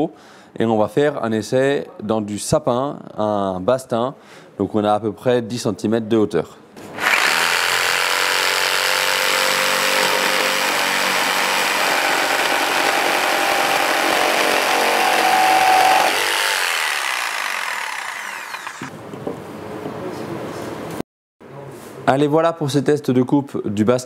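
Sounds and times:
jigsaw cutting wood: 0:06.9 - 0:18.9.

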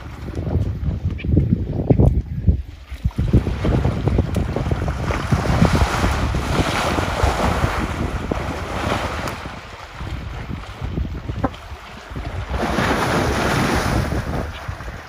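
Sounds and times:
wind buffeting microphone: 0:00.0 - 0:15.0
elephant splashing in water: 0:03.1 - 0:10.8.

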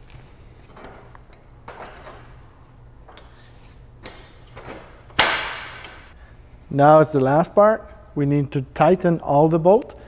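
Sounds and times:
loud metallic clack: 0:05.2 - 0:06.1.

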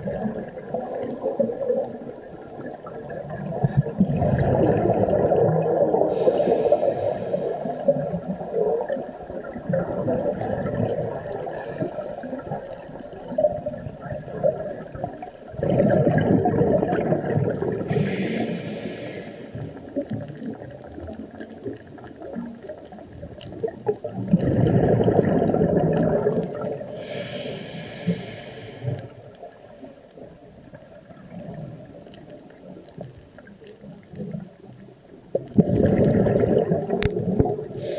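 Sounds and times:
gurgling underwater bubbles: 0:00.0 - 0:37.9
regulator hiss: 0:26.9 - 0:29.0.

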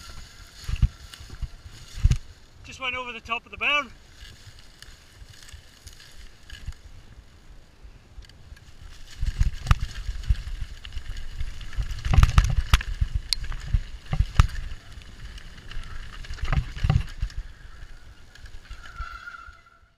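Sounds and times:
tyres rumbling over dirt: 0:08.4 - 0:19.8
bike knocks and clatters: 0:09.1 - 0:17.4.

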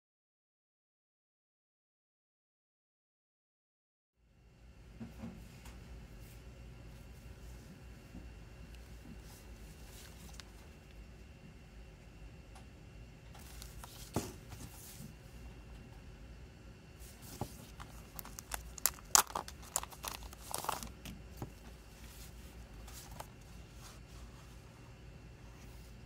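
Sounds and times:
plastic wrap crinkling and tearing: 0:17.5 - 0:21.1.

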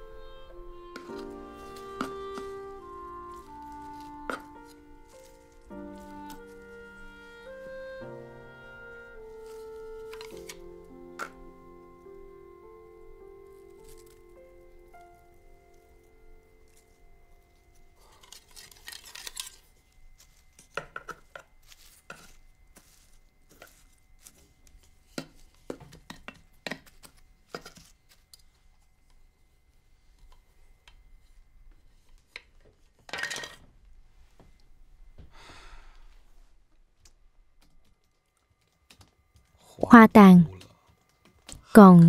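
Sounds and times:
leaves and twigs rustling: 0:00.6 - 0:07.7, 0:08.8 - 0:11.0, 0:13.4 - 0:20.8, 0:21.6 - 0:25.7.

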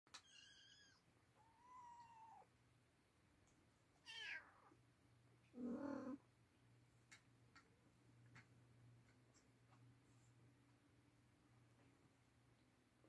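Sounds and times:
cat and kittens meowing: 0:00.1 - 0:02.5, 0:04.0 - 0:04.8, 0:05.6 - 0:06.2.

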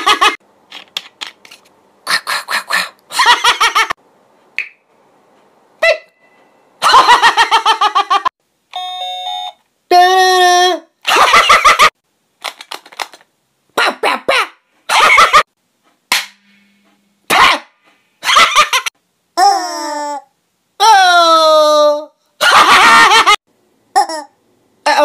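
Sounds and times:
household object sounds: 0:00.6 - 0:01.8
man mimicking sounds vocally: 0:02.1 - 0:03.0, 0:13.8 - 0:14.6.

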